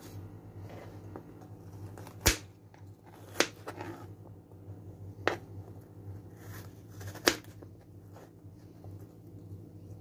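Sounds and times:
knife cutting carrots: 2.0s - 4.0s, 6.4s - 7.6s.

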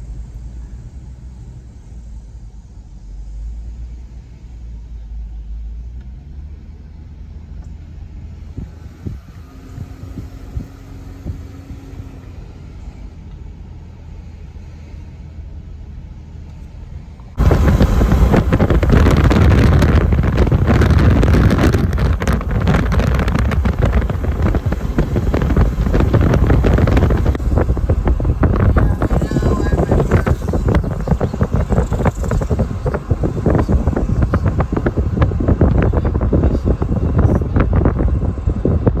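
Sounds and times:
car engine and road rumble: 0.0s - 39.0s
wind buffeting microphone: 8.1s - 12.2s, 17.3s - 39.0s.

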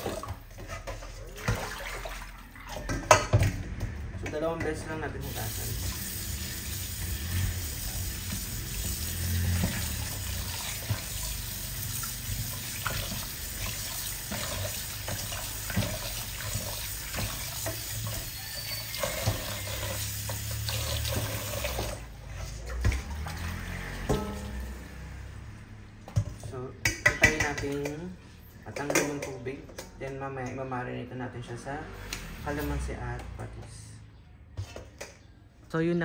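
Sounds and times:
knocks and splashes: 0.0s - 4.3s, 8.2s - 18.2s, 20.5s - 25.2s
tap water running into sink: 5.3s - 22.1s.

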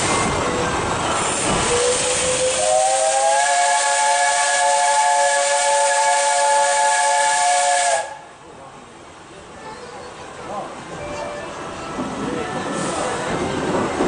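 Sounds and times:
train running noise: 0.0s - 14.0s
steam locomotive whistle: 1.6s - 8.3s.

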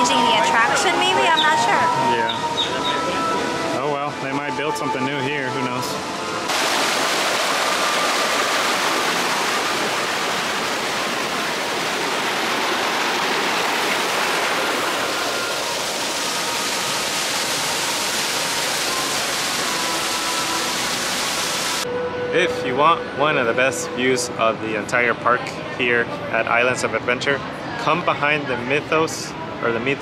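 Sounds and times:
falling water splashing: 6.5s - 21.8s.

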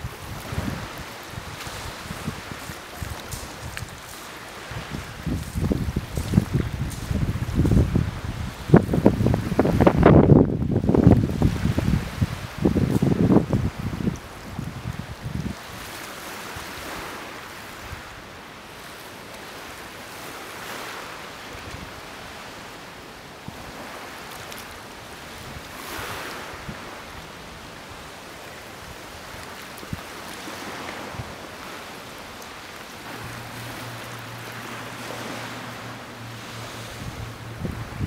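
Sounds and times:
small waves washing in: 0.0s - 38.0s
wind hiss: 0.0s - 38.0s
low steady hum: 31.4s - 38.0s.

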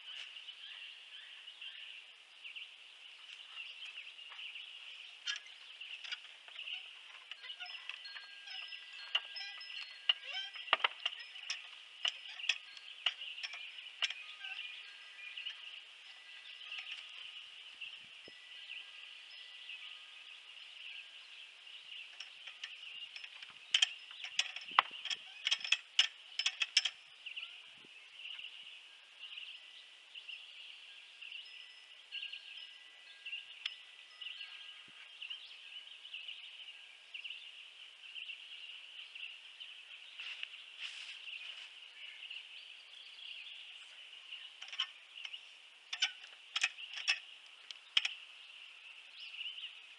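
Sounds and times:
steady high-pitched hiss: 0.0s - 49.9s
metallic clinks and knocks: 5.2s - 17.4s, 22.1s - 27.1s, 44.6s - 47.3s.

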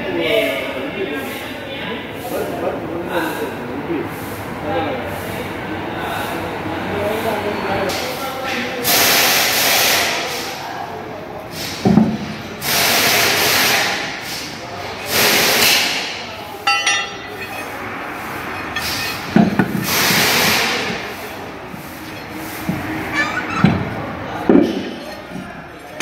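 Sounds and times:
ringing metal clink: 16.7s - 17.8s.

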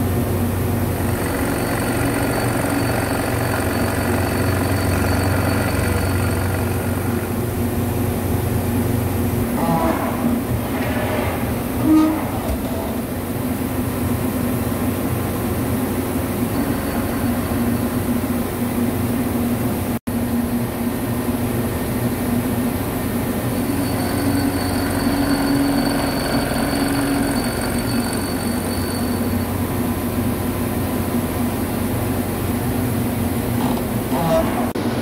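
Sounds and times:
machine spindle cutting metal: 0.9s - 7.4s, 23.6s - 29.6s.

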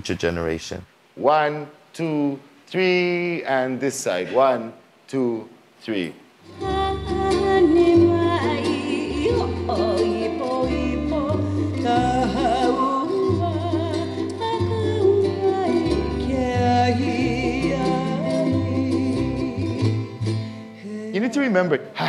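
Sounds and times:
plucked-string accompaniment: 6.4s - 20.8s
person singing: 6.5s - 22.0s.

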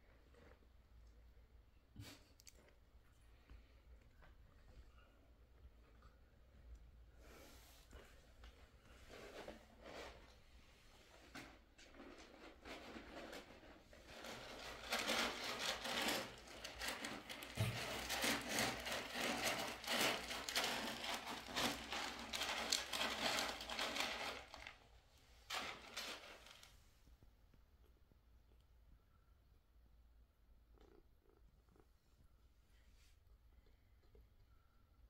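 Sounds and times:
cat crunching food: 14.2s - 24.7s.

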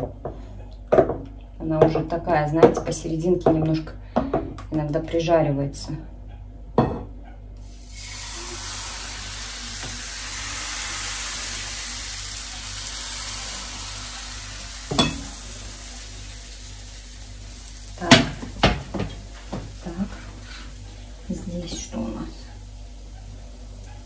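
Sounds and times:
batter sizzling in frying pan: 7.6s - 24.0s
utensil knocking on pan: 18.1s - 19.7s.

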